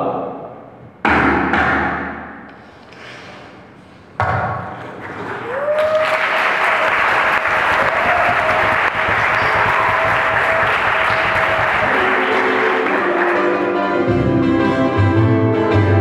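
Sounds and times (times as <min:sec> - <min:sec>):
audience applause: 0:05.0 - 0:13.8.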